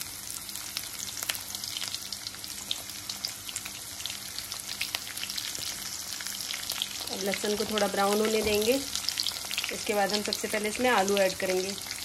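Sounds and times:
spices sizzling in hot oil: 0.0 - 12.0.

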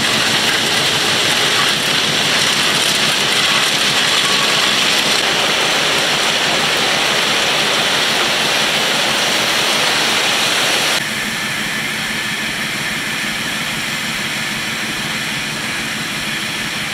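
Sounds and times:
stone ballast pouring and hissing: 0.0 - 11.0
train rolling: 0.0 - 16.9.

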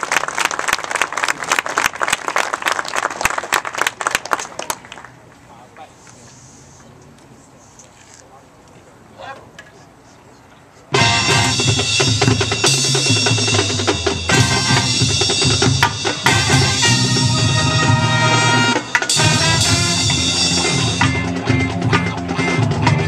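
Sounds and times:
marching band playing: 10.9 - 23.0.

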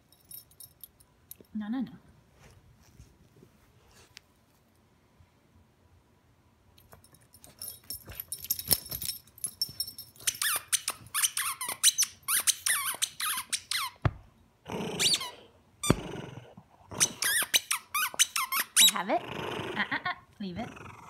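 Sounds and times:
squeaky toy squeaks: 10.2 - 14.0, 15.0 - 16.0, 17.0 - 19.0.

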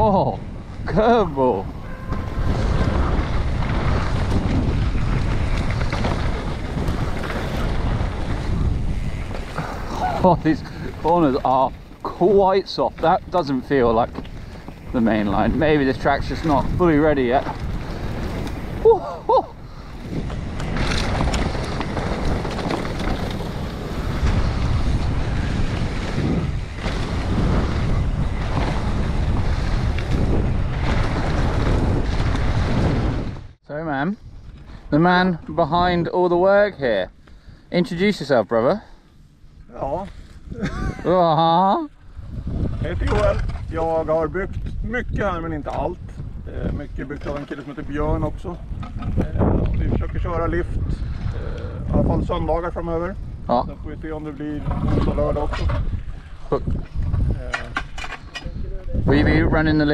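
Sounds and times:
tyres rumbling on dirt: 0.0 - 33.6, 42.4 - 59.9
wind rushing over microphone: 0.0 - 36.2, 41.8 - 59.9
bike knocks and rattles: 1.8 - 18.8, 19.7 - 33.5, 54.1 - 58.6.

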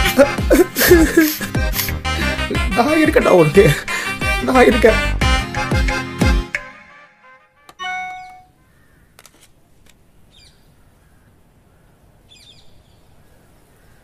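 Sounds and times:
phone message chime: 7.8 - 8.6
crows cawing faintly: 8.4 - 14.0.

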